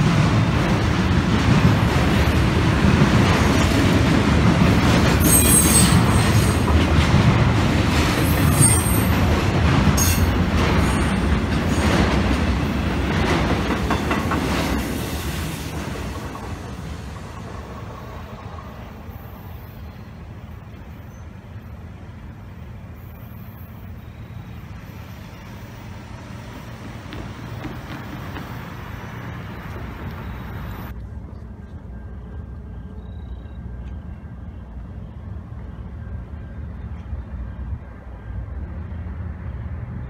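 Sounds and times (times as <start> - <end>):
cars idling and driving: 15.7 - 40.0.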